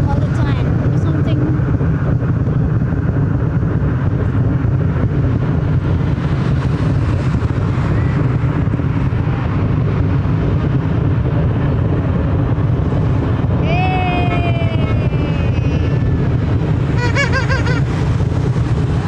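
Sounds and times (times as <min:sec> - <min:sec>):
distant fireworks rumble: 0:00.0 - 0:19.0
fireworks crackling: 0:02.6 - 0:19.0.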